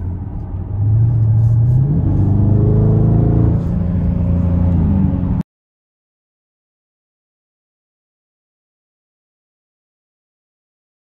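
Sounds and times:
car engine accelerating hard: 0.0 - 5.4.

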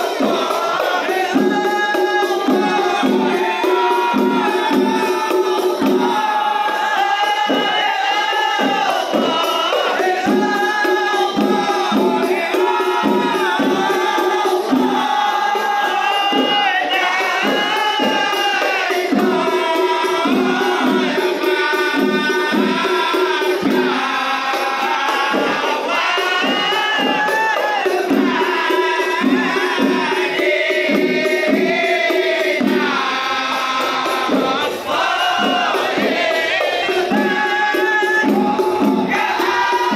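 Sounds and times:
frame drums beating: 0.0 - 39.9
group of men singing: 0.0 - 39.9.

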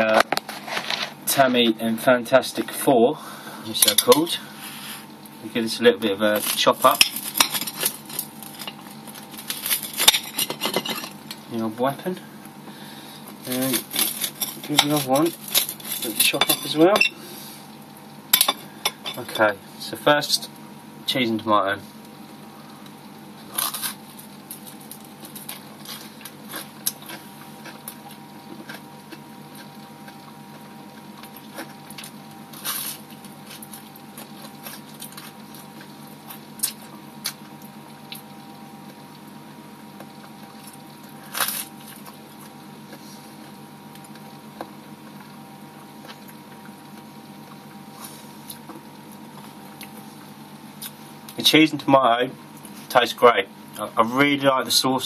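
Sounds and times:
steady hum: 0.0 - 55.0
person chewing: 22.8 - 38.3, 47.8 - 50.1.

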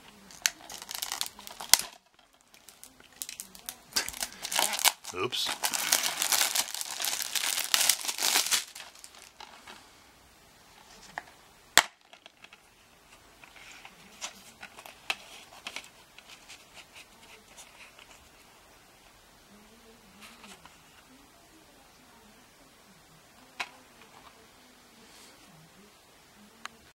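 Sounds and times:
plastic shrink wrap crinkling: 0.0 - 9.8, 10.8 - 12.6.

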